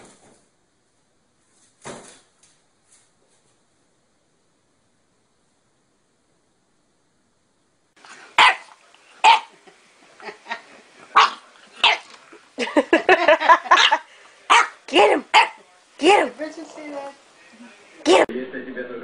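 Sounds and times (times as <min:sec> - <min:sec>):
puppy barking and yapping: 0:08.0 - 0:12.4, 0:13.4 - 0:15.6.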